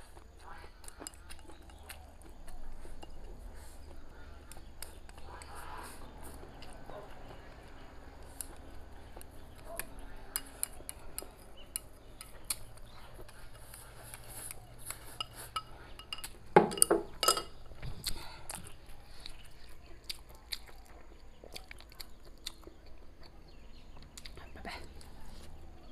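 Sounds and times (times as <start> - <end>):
chewing: 0.0 - 25.9.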